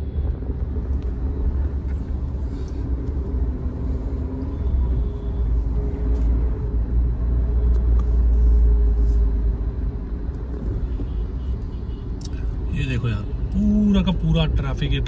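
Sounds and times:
car interior engine and road noise: 0.0 - 15.0.

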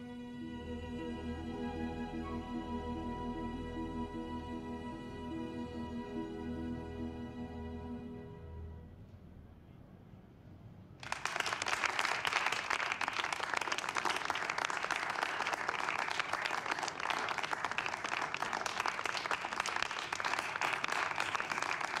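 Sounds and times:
song: 0.0 - 8.9
audience applause: 11.0 - 22.0.

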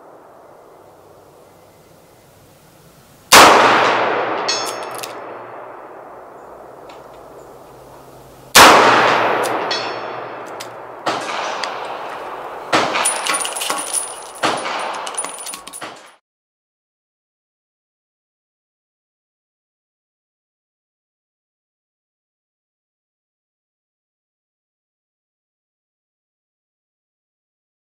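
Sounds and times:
revolver gunshots echoing: 3.3 - 7.4, 8.5 - 16.1
sharp metallic clicks and clinks: 4.5 - 5.2, 9.4 - 16.2
steel target ringing ping: 9.0 - 10.9.

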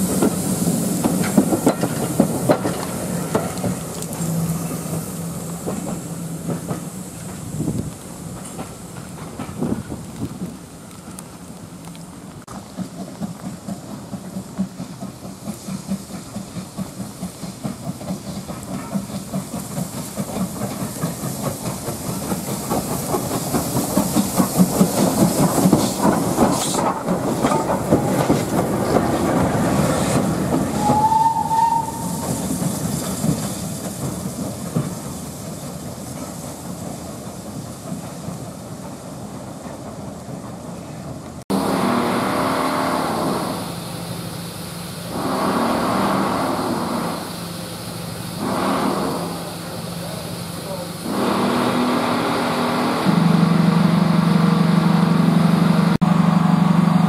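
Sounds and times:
steam locomotive chuffing: 0.0 - 11.0, 12.5 - 57.0
steam hissing: 0.0 - 57.0
train wheel clatter: 0.0 - 57.0
high squeal: 30.7 - 32.6.

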